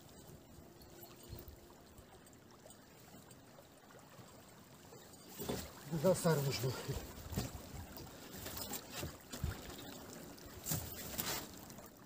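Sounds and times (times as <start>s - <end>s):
fishing net being hauled: 5.3s - 12.0s.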